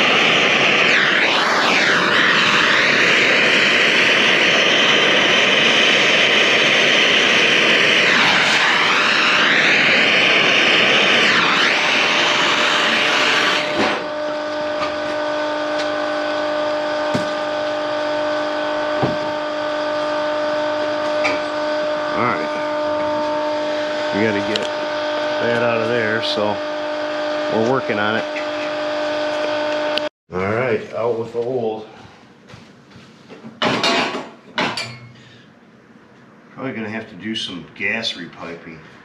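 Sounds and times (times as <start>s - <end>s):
electric power tool motor: 0.0s - 30.1s
steady hum: 0.0s - 32.9s.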